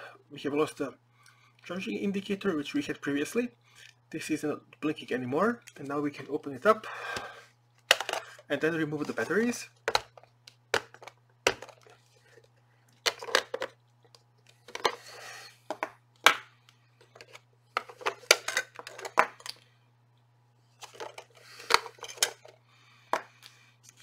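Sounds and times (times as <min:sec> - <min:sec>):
batteries clicking and rattling: 0:07.8 - 0:08.5.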